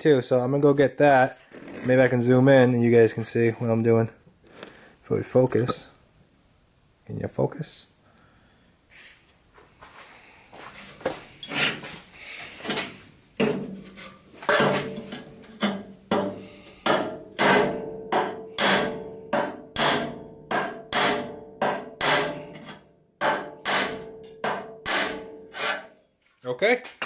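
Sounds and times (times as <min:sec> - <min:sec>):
hammer striking steel rail: 0:14.5 - 0:25.9.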